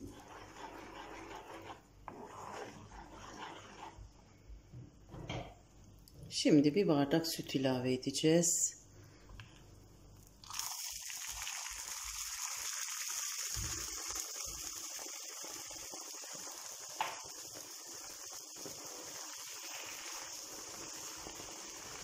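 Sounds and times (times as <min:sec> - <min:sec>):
caramel sizzling and hissing: 0:00.0 - 0:04.1, 0:10.4 - 0:22.0.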